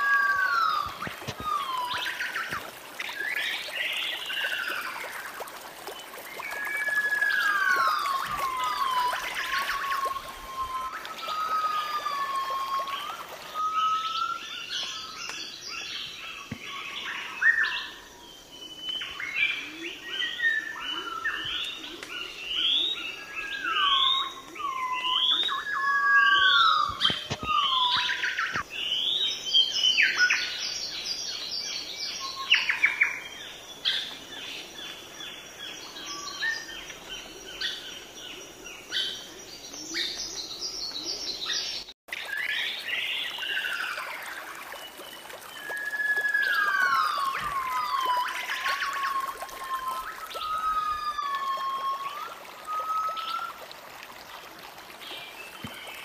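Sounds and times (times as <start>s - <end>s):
rising whistled bird notes: 0.0s - 4.9s, 6.3s - 15.8s, 45.5s - 53.6s
birds chirping and trilling: 6.0s - 53.6s.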